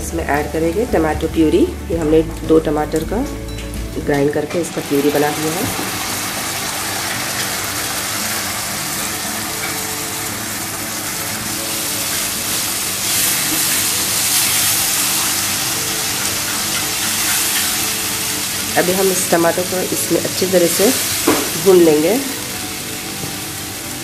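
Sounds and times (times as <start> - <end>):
puree sizzling in a frying pan: 0.0 - 24.0
spatula stirring: 4.6 - 19.8.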